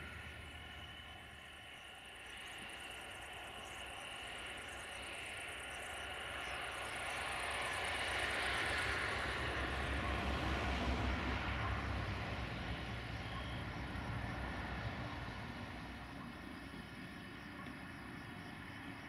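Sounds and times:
passing vehicle rumble: 0:00.0 - 0:01.7, 0:07.7 - 0:19.0
low drone: 0:00.0 - 0:19.0.

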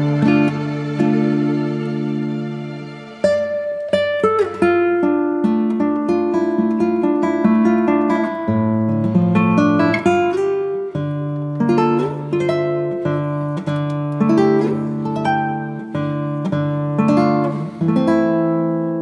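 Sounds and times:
plucked melody: 0:00.0 - 0:19.0.

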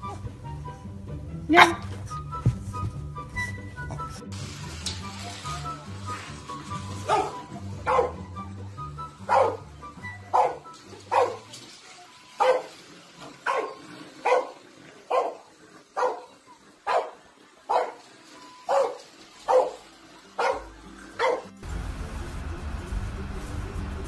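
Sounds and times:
dog barking: 0:01.5 - 0:02.0, 0:07.0 - 0:08.3, 0:09.3 - 0:09.7, 0:10.3 - 0:11.5, 0:12.4 - 0:12.8, 0:13.4 - 0:18.0, 0:18.7 - 0:19.8, 0:20.4 - 0:21.6.

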